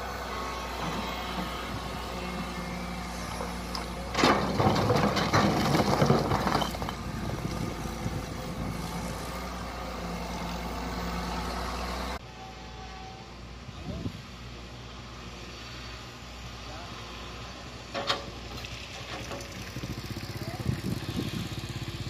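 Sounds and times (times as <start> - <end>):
excavator diesel engine running: 0.0 - 12.2
bucket scraping and clattering soil: 4.1 - 8.0.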